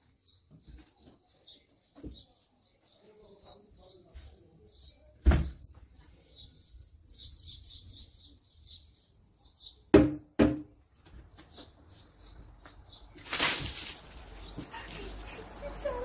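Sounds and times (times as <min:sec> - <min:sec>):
small birds chirping: 0:00.0 - 0:09.9, 0:10.7 - 0:16.0
sharp knocks: 0:09.9 - 0:10.7.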